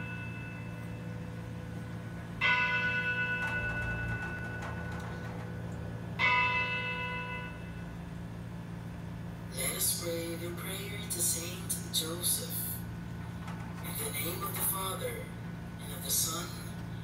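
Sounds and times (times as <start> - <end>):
bell ringing: 0.0 - 8.0.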